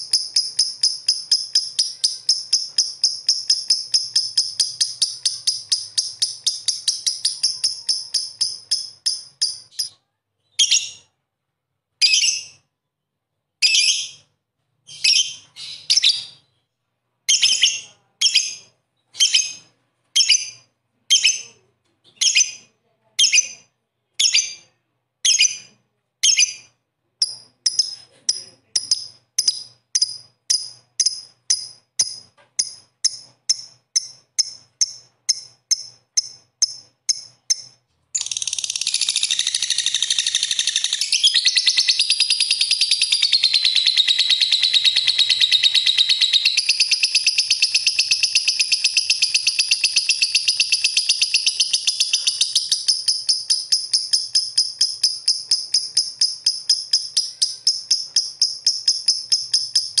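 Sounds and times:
lovebird rattling chatter: 0.0 - 9.9, 27.2 - 60.0
lovebird chirping: 0.0 - 11.2, 12.0 - 12.7, 13.6 - 60.0.

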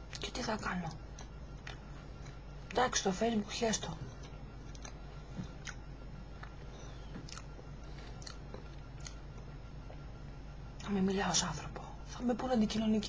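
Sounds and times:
person chewing cake: 1.0 - 2.8, 4.0 - 10.9
wet mouth clicks: 5.6 - 5.8, 7.2 - 9.2.

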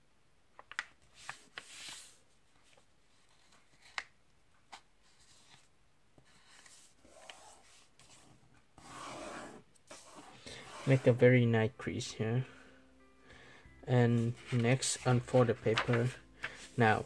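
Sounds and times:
paper rustling and folding: 0.6 - 4.1, 14.2 - 17.0.

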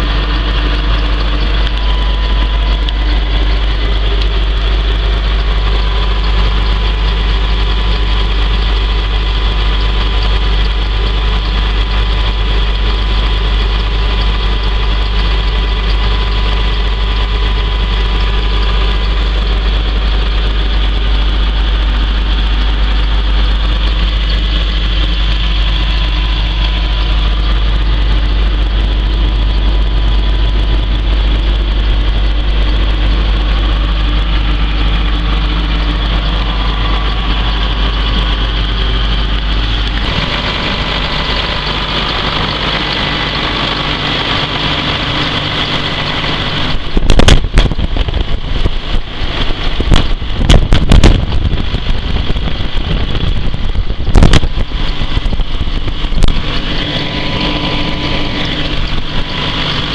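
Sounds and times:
diesel tractor engine idling: 0.0 - 59.9
loud sharp knocks and crackles: 22.6 - 59.9.

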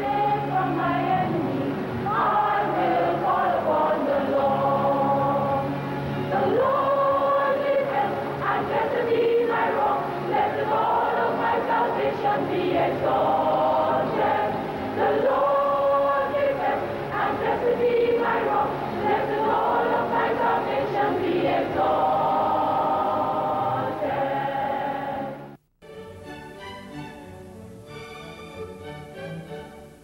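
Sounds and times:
instrumental music with bowed strings: 0.0 - 9.4, 25.9 - 30.0
choir singing: 0.0 - 25.6.

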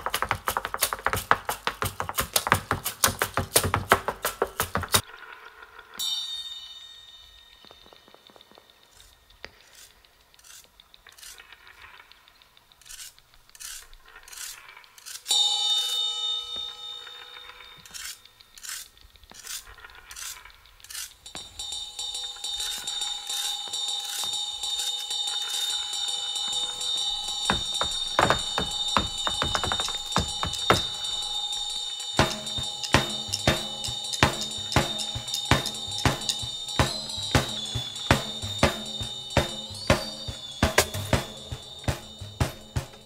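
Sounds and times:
steady metallic ringing: 5.8 - 9.3, 15.2 - 19.0, 21.0 - 43.0
struck ringing chord: 15.3 - 18.4, 21.3 - 43.0.

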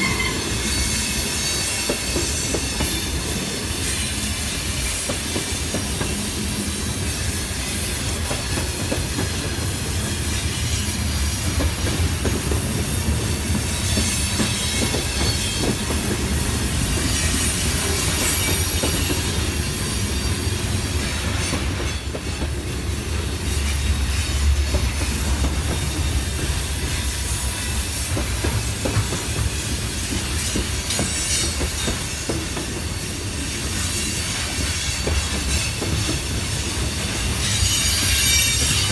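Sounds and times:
high-pitched wheel squeal: 0.0 - 5.6, 16.9 - 25.4, 29.4 - 38.9.

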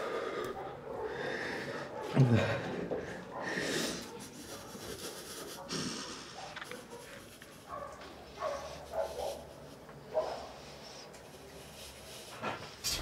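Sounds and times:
man sobbing: 2.2 - 3.0.

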